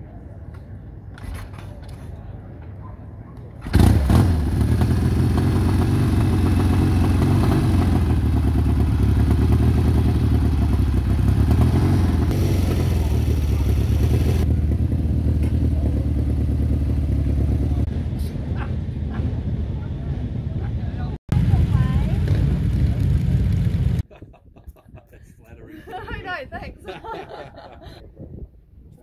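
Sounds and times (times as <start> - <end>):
motorcycle engine starting and idling: 3.6 - 17.9.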